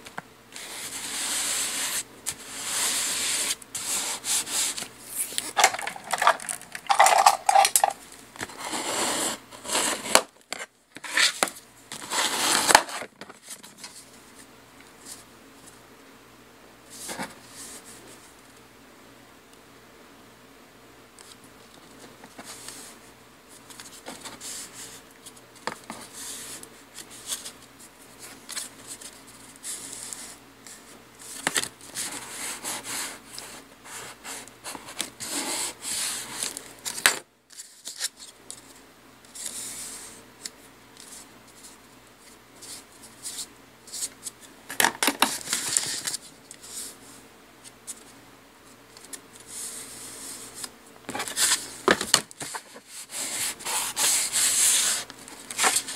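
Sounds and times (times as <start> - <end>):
paper sliding and handled: 0.6 - 14.0, 39.3 - 44.2, 49.0 - 55.9.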